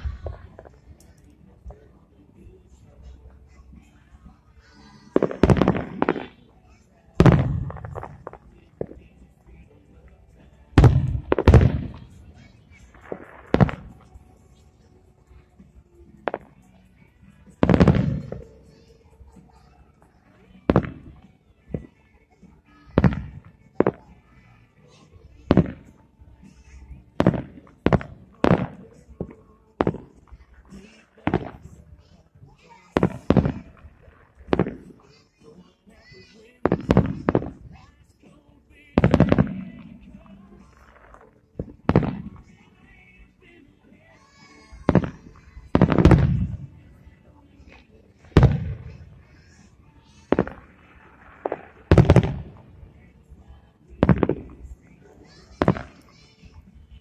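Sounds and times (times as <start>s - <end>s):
fireworks booming: 4.9s - 6.5s, 7.2s - 9.6s, 10.6s - 14.2s, 17.6s - 18.9s, 22.9s - 24.1s, 26.6s - 31.9s, 32.8s - 35.2s, 36.0s - 37.9s, 38.9s - 42.6s, 44.3s - 47.0s, 48.2s - 53.1s, 53.9s - 56.6s.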